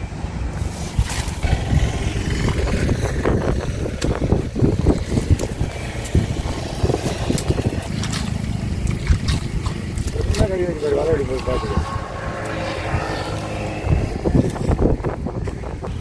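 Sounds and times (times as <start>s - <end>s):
wind rumbling on microphone: 0.0s - 16.0s
twigs clicking: 4.9s - 10.8s
splashing in muddy water: 5.0s - 12.5s.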